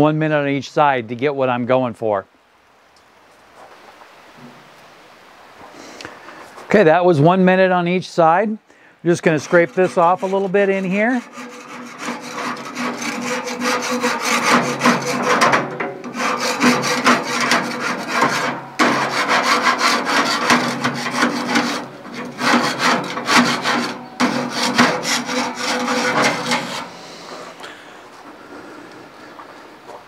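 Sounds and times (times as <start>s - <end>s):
scraping grill grate: 9.1s - 27.8s.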